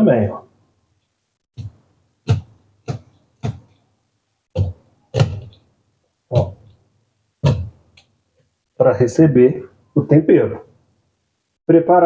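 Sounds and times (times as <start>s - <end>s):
knife knocking on plastic cutting board: 1.6s - 3.7s.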